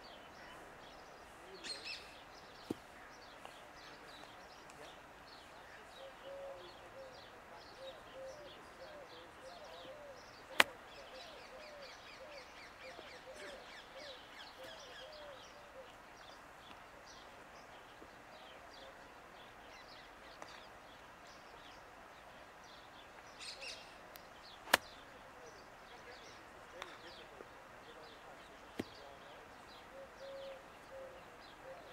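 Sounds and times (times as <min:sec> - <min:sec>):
birds chirping: 0:00.0 - 0:31.9
golf club striking ball: 0:24.7 - 0:25.0.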